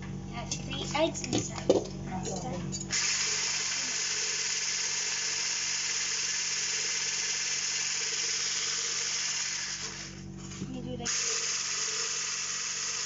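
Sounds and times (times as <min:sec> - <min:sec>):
stick blender whirring: 0:02.9 - 0:13.0.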